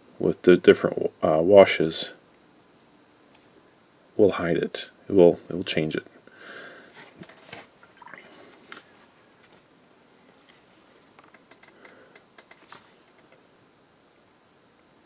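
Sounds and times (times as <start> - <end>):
soft clicks and rustles: 7.0 - 13.4.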